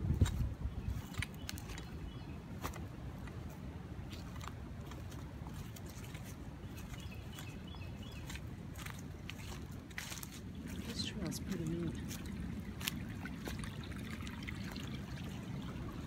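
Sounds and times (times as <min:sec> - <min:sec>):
low rumble on microphone: 0:00.0 - 0:02.7
footsteps crunching through leaves: 0:00.0 - 0:13.9.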